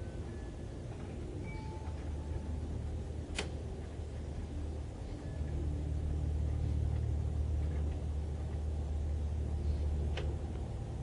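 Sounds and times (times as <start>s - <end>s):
low steady rumble: 0.0s - 11.0s
sharp click: 3.3s - 3.6s.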